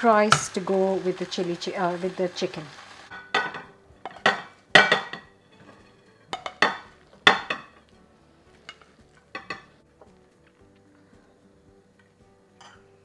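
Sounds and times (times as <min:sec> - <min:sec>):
metal bowl clattering on plate: 0:03.1 - 0:07.8, 0:08.7 - 0:09.7.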